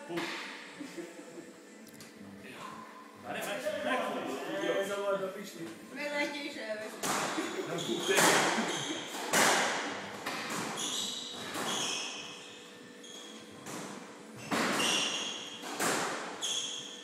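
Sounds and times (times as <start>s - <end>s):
squash ball hitting racket and walls: 7.0s - 12.6s, 13.2s - 17.0s
shoes squeaking on wooden floor: 7.6s - 9.3s, 10.2s - 13.4s, 16.4s - 17.0s.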